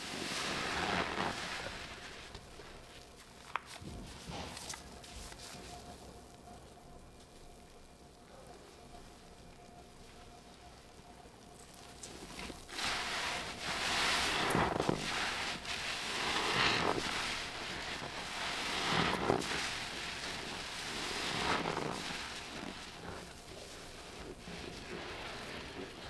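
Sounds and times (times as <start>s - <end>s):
sponge squelching when squeezed: 0.0s - 5.9s, 11.6s - 26.0s.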